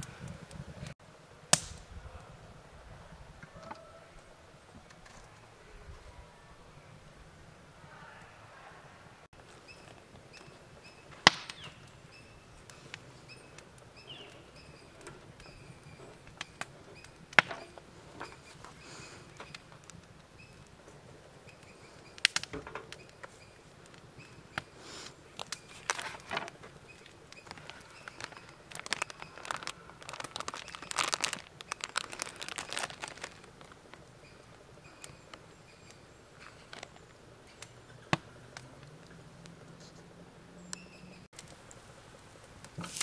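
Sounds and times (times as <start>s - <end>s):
plastic packaging crinkling: 25.3s - 34.0s, 42.8s - 43.0s.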